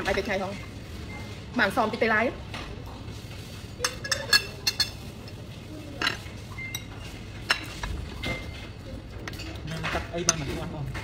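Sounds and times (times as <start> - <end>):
cutlery clinking on china plates: 3.8 - 5.4, 6.0 - 11.0.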